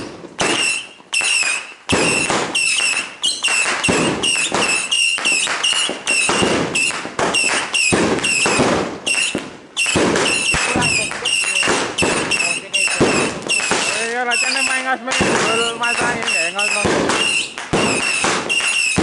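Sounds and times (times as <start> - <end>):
fireworks bangs: 0.0 - 19.0.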